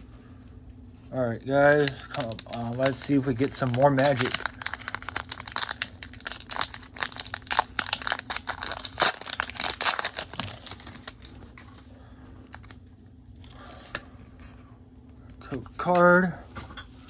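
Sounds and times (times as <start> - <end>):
foil wrapper crinkling and tearing: 1.7 - 11.4.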